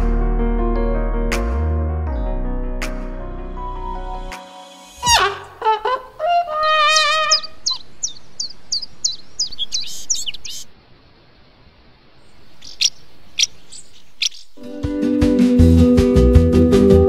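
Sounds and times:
short sharp bird calls: 5.0s - 10.7s, 12.2s - 14.6s
songbird singing: 5.0s - 14.7s.

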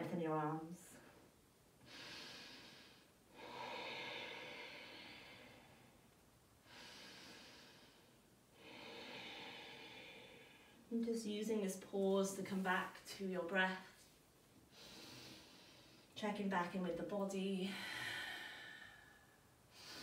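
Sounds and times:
woman breathing slowly: 1.0s - 10.9s, 14.6s - 16.2s, 17.6s - 20.0s.

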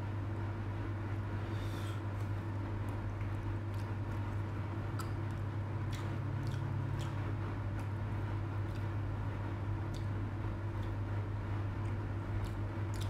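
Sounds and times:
steady low hum: 0.0s - 13.0s
person chewing cake: 1.2s - 13.0s
wet mouth clicks: 3.2s - 7.2s, 9.9s - 11.0s, 11.9s - 13.0s.

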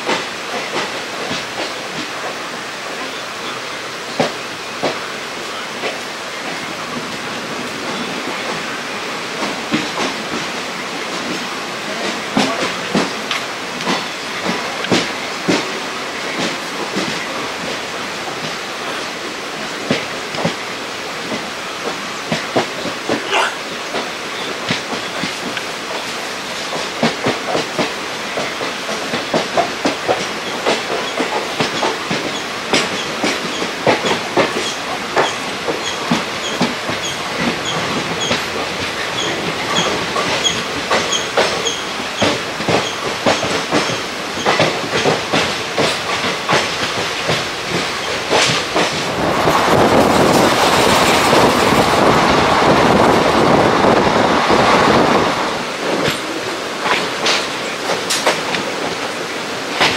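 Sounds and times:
train wheels clacking over rail joints: 0.0s - 5.2s, 5.8s - 59.9s
steady rushing noise: 45.2s - 59.9s.

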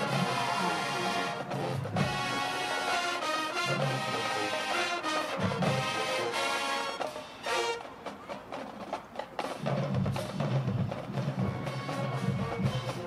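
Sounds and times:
marching band playing: 0.0s - 13.0s.

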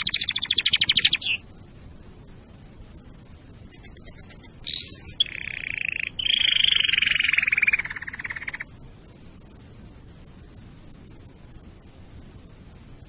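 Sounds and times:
canary singing: 0.0s - 1.4s, 3.7s - 8.7s.

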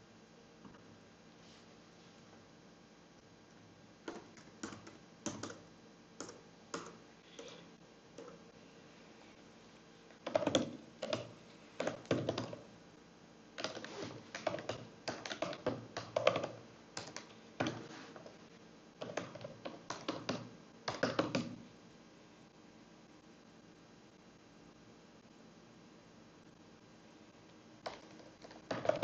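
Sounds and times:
typing on computer keyboard: 4.0s - 7.6s, 8.2s - 8.4s, 10.2s - 12.7s, 13.6s - 17.8s, 19.0s - 21.6s, 27.8s - 29.0s.

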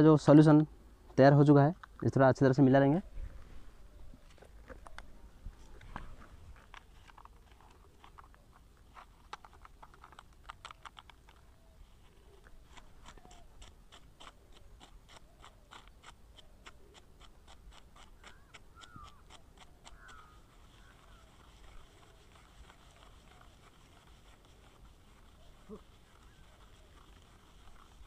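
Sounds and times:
stick stirring in plastic cup: 17.2s - 28.0s.

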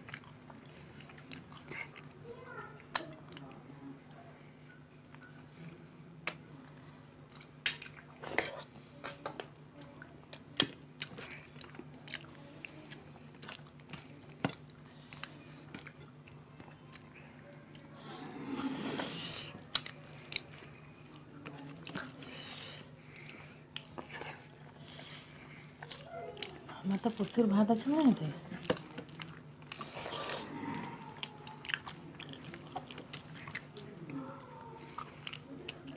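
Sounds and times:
people chewing and smacking: 0.0s - 35.9s.

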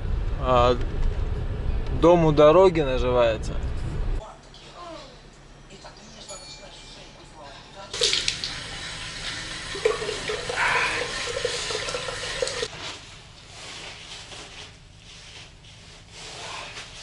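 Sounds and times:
tap water running into basin: 8.0s - 12.7s.

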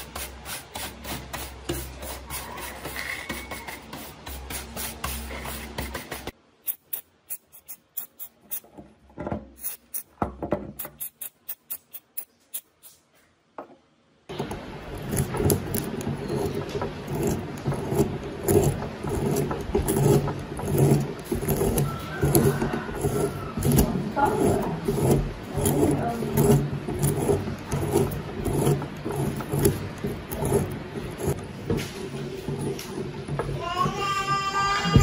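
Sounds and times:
vise screw scraping grind: 14.9s - 31.5s.

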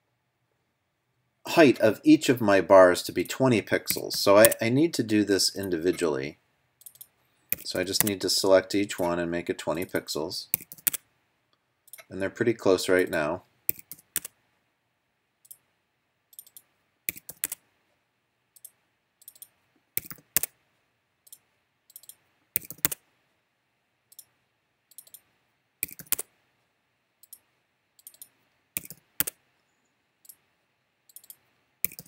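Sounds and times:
mouse clicks: 10.6s - 11.0s, 24.9s - 26.3s, 28.0s - 29.4s, 31.1s - 32.0s
keyboard keystrokes: 16.4s - 17.6s, 21.3s - 23.0s, 25.8s - 26.3s, 28.0s - 29.4s, 31.1s - 32.0s.

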